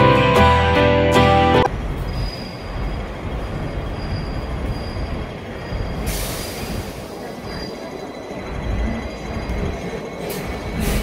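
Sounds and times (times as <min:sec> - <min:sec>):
tram wheels rumbling on rail: 0:01.7 - 0:11.0
faint wheel squeal: 0:02.0 - 0:03.0, 0:03.7 - 0:11.0.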